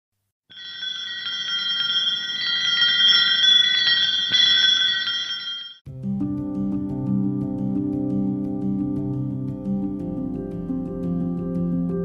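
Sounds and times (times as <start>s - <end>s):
shimmering bell-like chimes: 0.5s - 5.8s
low background music: 5.9s - 12.0s.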